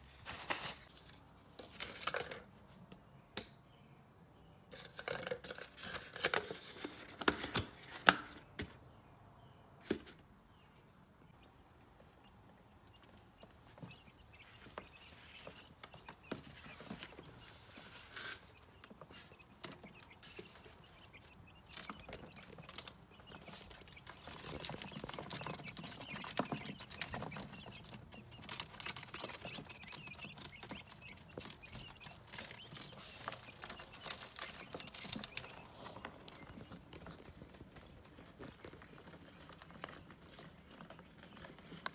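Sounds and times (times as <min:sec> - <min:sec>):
quail chicks cheeping: 0:10.5 - 0:41.9.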